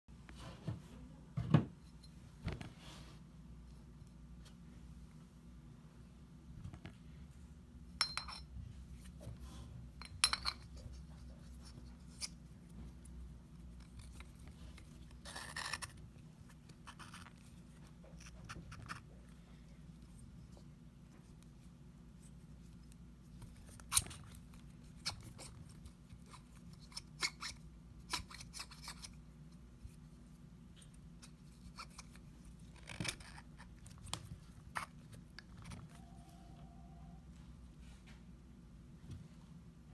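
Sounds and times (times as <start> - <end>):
low room hum: 0.1 - 39.9
metal bearing clicks and scrapes: 10.0 - 12.5, 13.5 - 19.1.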